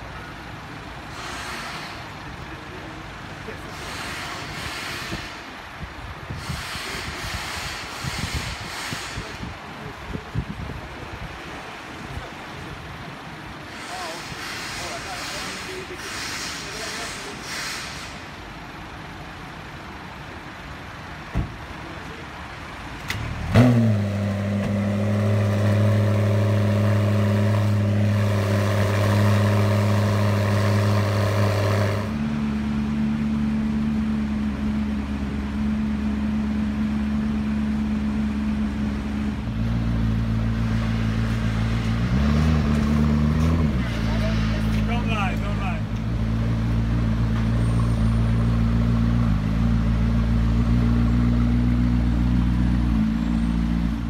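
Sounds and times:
quiet street noise: 0.0s - 54.0s
car engine starting and idling: 12.5s - 54.0s.

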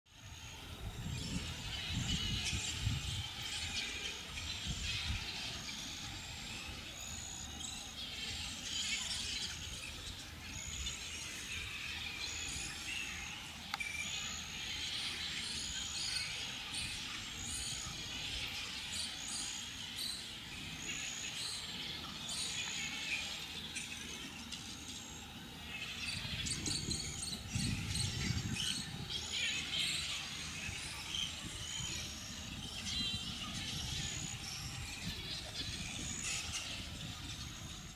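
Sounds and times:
bats squeaking and chattering: 0.2s - 37.9s.

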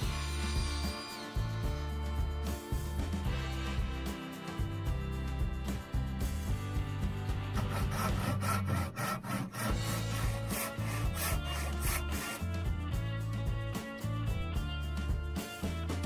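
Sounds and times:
handsaw cutting wood: 7.3s - 12.6s.

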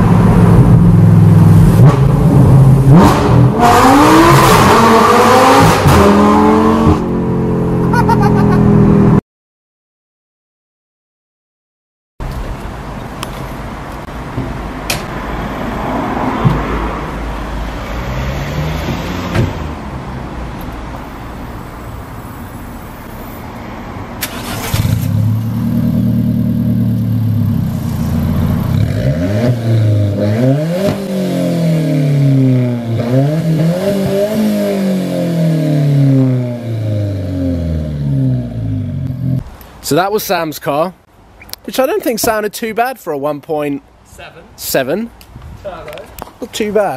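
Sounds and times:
car engine starting and revving: 0.0s - 9.2s, 17.8s - 20.2s, 24.2s - 39.5s.

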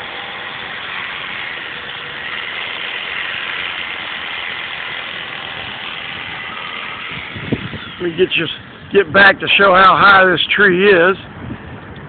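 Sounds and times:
motor running: 0.0s - 9.6s.

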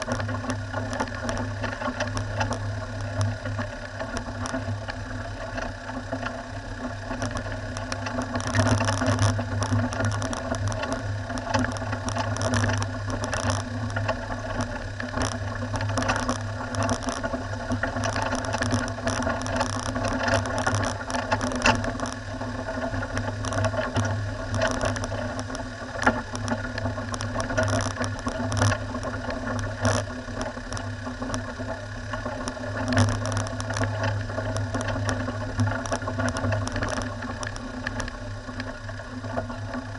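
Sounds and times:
knocks and rattles from vehicle: 0.0s - 39.9s
vehicle engine running: 0.0s - 39.9s
tyres on gravel: 7.0s - 39.9s.

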